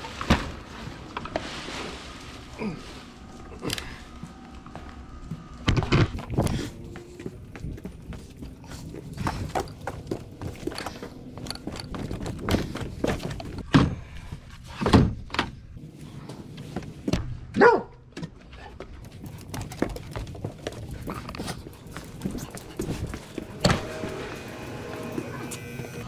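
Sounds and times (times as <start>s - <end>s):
footsteps on wooden dock: 4.8s - 14.2s, 18.8s - 23.9s
dog barking: 17.6s - 18.0s.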